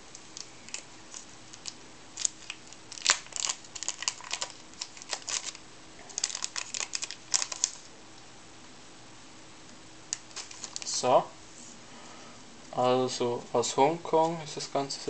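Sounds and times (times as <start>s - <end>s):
plastic packaging crinkling: 0.3s - 7.9s, 10.1s - 11.0s.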